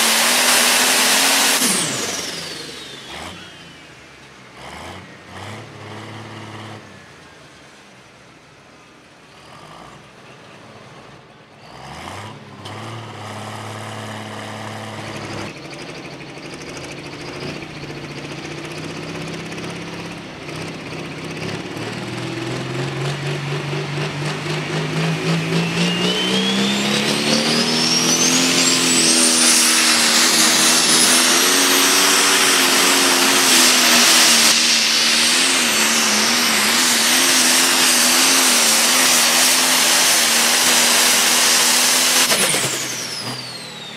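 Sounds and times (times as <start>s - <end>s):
turbocharger whistling whine: 0.0s - 4.2s, 13.5s - 43.9s
diesel tractor engine at full throttle: 0.0s - 8.2s, 10.0s - 43.9s.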